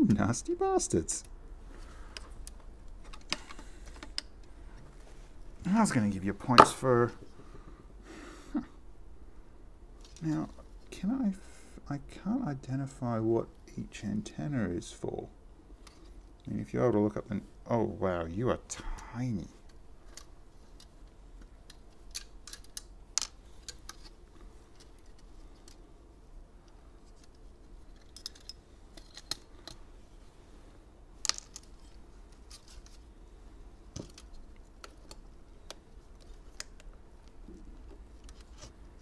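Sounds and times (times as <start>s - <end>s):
plastic parts clicking and tapping: 33.9s - 38.7s.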